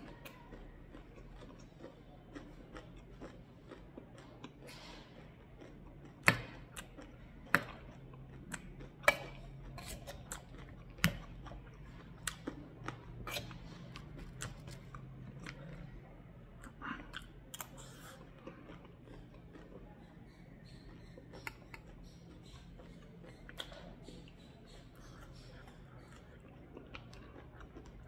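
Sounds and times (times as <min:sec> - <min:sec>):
crunching dry snack: 0:00.0 - 0:16.0.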